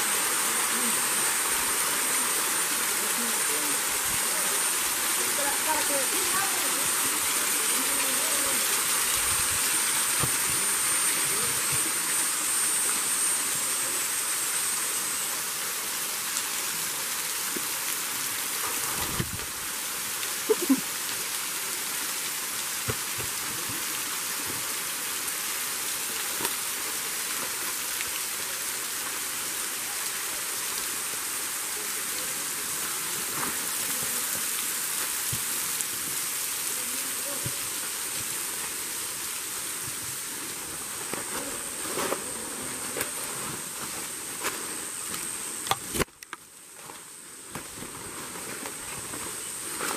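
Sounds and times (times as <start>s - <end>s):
waterfall pouring and splashing: 0.0s - 49.9s.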